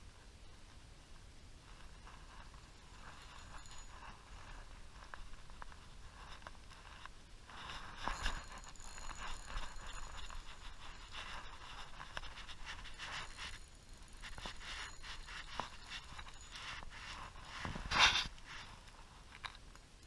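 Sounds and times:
scratchy rustles and clicks: 1.6 - 19.7.

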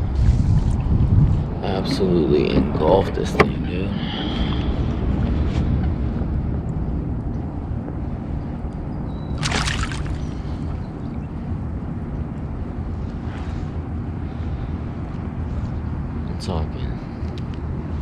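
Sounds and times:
water splash: 9.4 - 10.5
water sloshing: 9.4 - 10.8.

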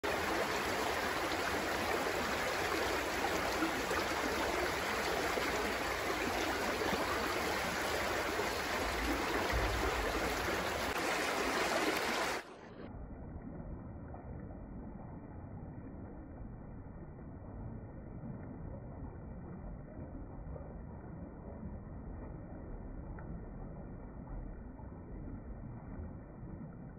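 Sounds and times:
stream rushing over stones: 0.0 - 12.6.

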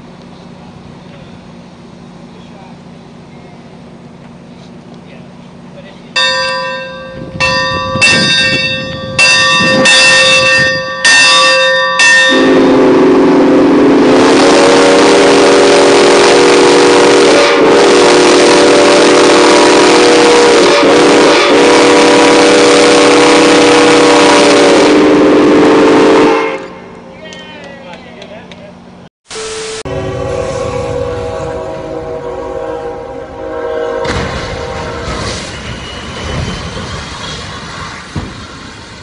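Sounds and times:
locomotive bell ringing: 6.1 - 12.8
steam whistle blast: 7.9 - 26.8, 29.3 - 36.3.

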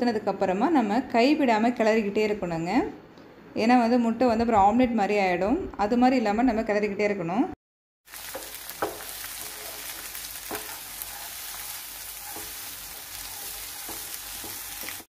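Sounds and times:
eggs sizzling in a pan: 8.0 - 15.0
wooden spatula scraping a pan: 8.3 - 15.0.

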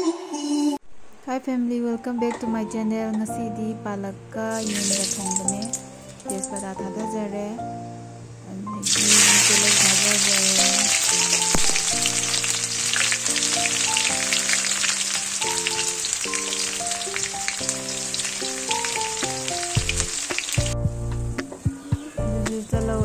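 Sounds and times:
gentle instrumental music: 1.6 - 23.0
spinach sizzling in hot oil: 4.5 - 6.7, 8.8 - 20.8.

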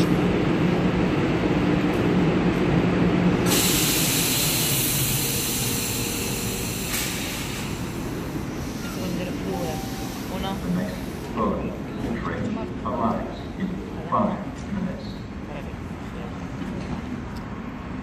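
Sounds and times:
subway train low hum: 0.0 - 18.0
loud air hiss: 3.4 - 11.3.

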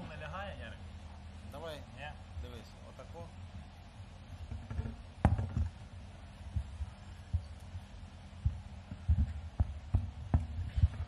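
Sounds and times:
low steady hum: 0.0 - 11.0
thumps on table microphones: 4.5 - 5.8.

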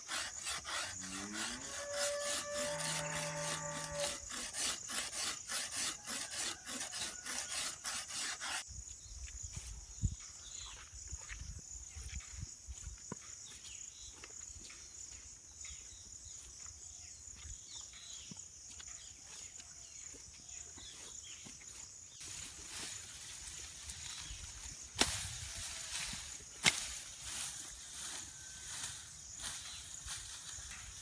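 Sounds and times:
insect drone: 0.0 - 5.5, 20.2 - 31.0
sickle cutting grass stems: 0.0 - 8.6, 22.2 - 31.0
footsteps through tall grass: 16.3 - 31.0.

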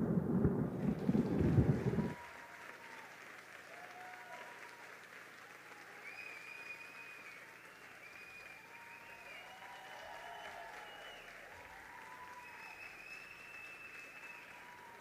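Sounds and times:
deep rumbling sound: 0.0 - 2.2
audience applauding: 0.8 - 15.0
faint high cheers: 1.3 - 15.0.

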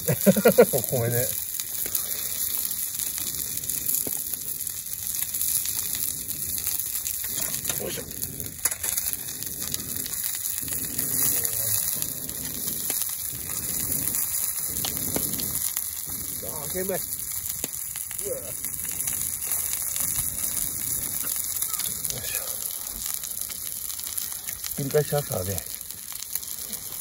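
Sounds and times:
steak sizzling on a griddle: 0.0 - 27.0.

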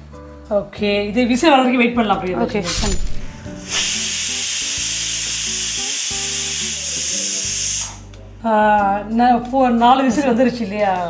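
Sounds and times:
pressure cooker steam hissing: 3.0 - 8.1.

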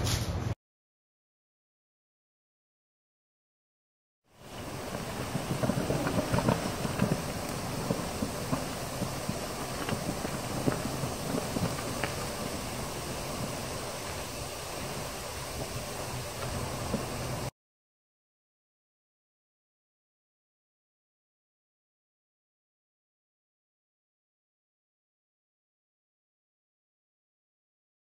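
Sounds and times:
fermenting mash fizzing and crackling: 4.3 - 17.5.

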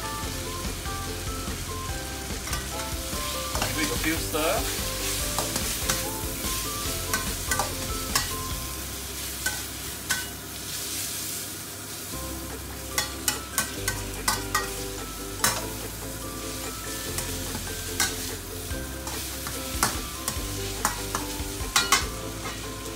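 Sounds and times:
noodles sizzling in a wok: 0.0 - 22.9
metal spatula clinking on wok: 7.1 - 8.5, 9.4 - 10.4, 13.0 - 14.8, 17.9 - 18.3, 19.1 - 22.6.

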